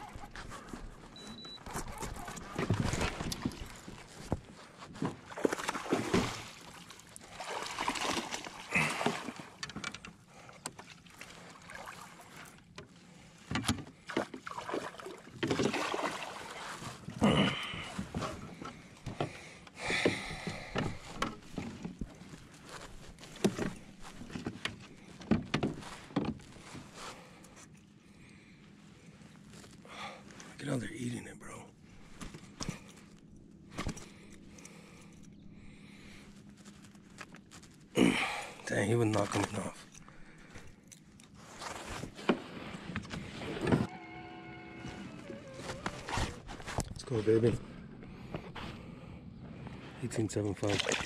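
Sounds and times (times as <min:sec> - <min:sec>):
water sloshing: 0:01.7 - 0:27.8, 0:50.2 - 0:51.0
fish splashing at surface: 0:05.4 - 0:09.4, 0:50.6 - 0:51.0.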